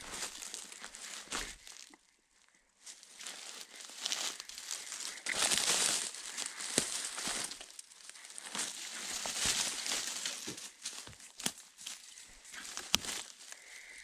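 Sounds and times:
footsteps crunching dry leaves: 0:00.0 - 0:01.9, 0:02.8 - 0:14.0
twigs snapping: 0:03.2 - 0:13.9.

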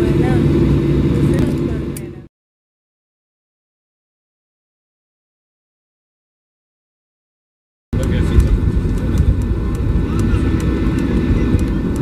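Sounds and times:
airliner cabin rumble: 0:00.0 - 0:02.3, 0:08.0 - 0:12.0
faint passenger voices: 0:00.0 - 0:02.3, 0:08.0 - 0:12.0.

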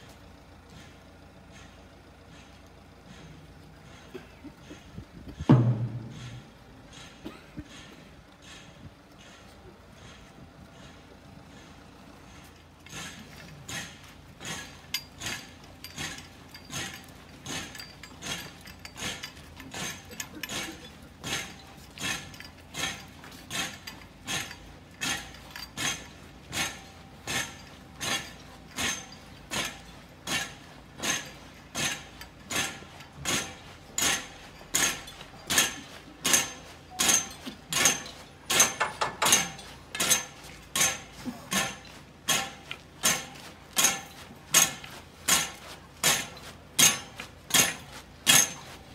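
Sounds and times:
sharp metallic clinks: 0:12.2 - 0:48.9.

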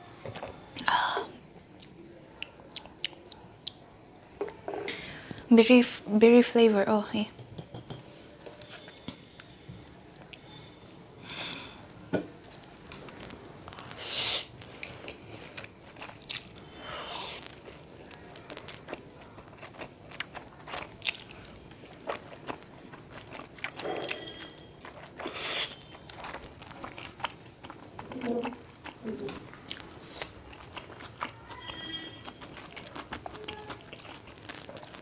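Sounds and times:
wet chewing: 0:11.8 - 0:35.0.

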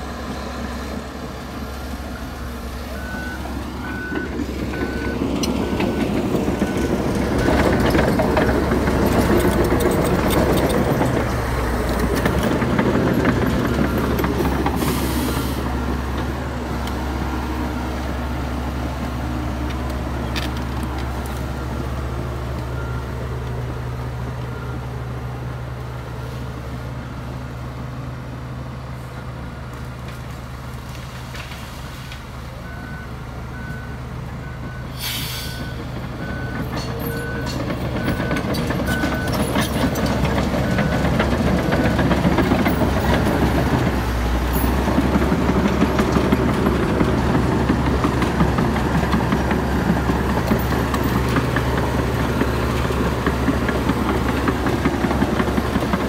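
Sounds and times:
heavy diesel machinery running: 0:00.0 - 0:56.0
reversing alarm beeping: 0:02.9 - 0:08.6, 0:32.6 - 0:43.9
short air hisses: 0:34.9 - 0:35.6.

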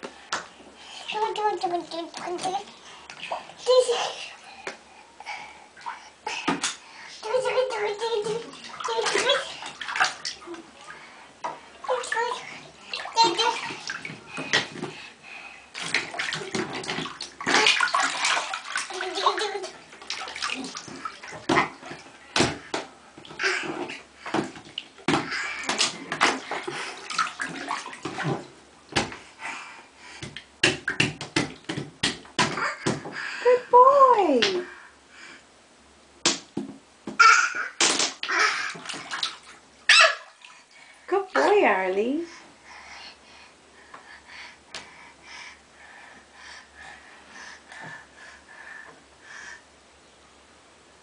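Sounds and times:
bathwater sloshing and splashing: 0:00.0 - 0:33.5, 0:36.2 - 0:42.3
sharp slaps and taps: 0:36.2 - 0:37.2, 0:37.8 - 0:38.2.

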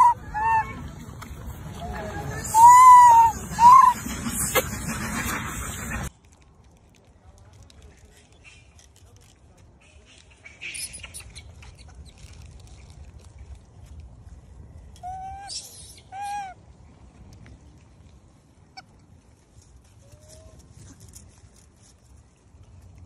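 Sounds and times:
macaque calling: 0:00.0 - 0:01.0, 0:01.9 - 0:05.9.

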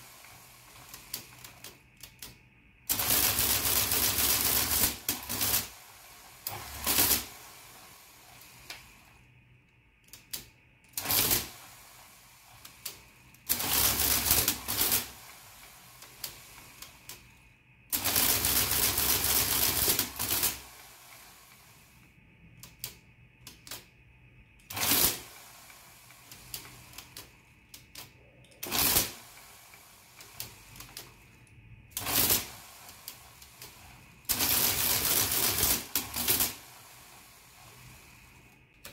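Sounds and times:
printing calculator clattering: 0:13.5 - 0:15.2, 0:18.0 - 0:20.6.

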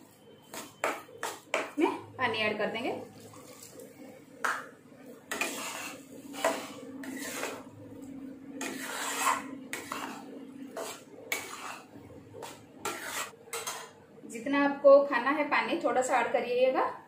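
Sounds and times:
spatula scraping a pan: 0:00.0 - 0:01.8, 0:05.2 - 0:07.8, 0:08.4 - 0:14.0.

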